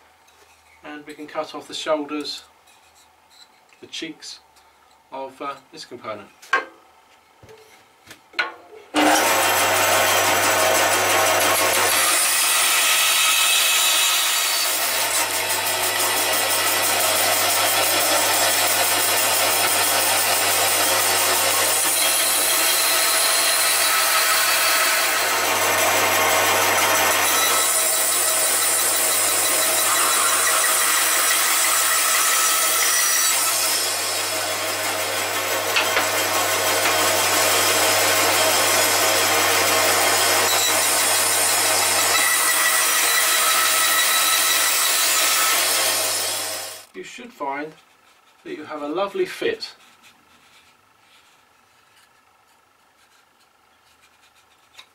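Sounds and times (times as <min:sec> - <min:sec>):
band saw motor hum: 0:09.0 - 0:13.6, 0:14.4 - 0:46.9
saw blade cutting wood: 0:09.0 - 0:46.9.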